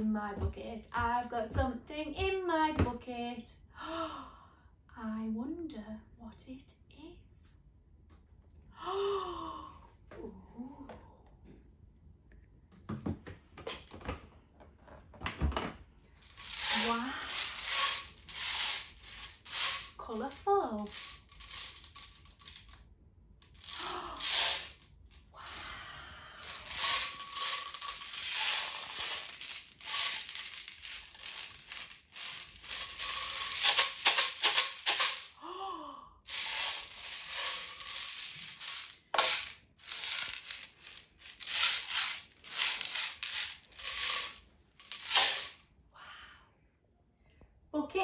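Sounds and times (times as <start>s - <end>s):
beads rattling in shaker tube: 16.2s - 22.8s, 23.4s - 35.4s, 36.3s - 45.6s.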